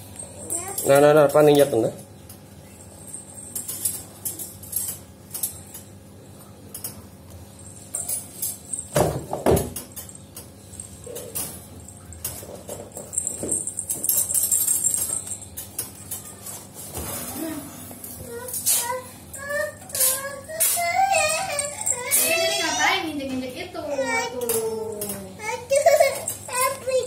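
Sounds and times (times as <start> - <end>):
metallic jingling of wire cage: 2.8 - 6.0, 7.5 - 9.0, 9.8 - 16.6, 20.0 - 22.8.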